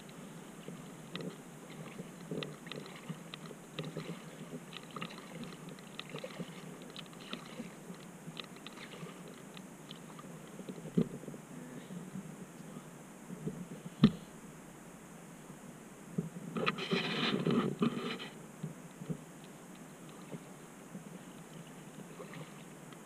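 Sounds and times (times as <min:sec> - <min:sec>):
water lapping against a kayak: 0:00.0 - 0:11.4, 0:20.0 - 0:22.8.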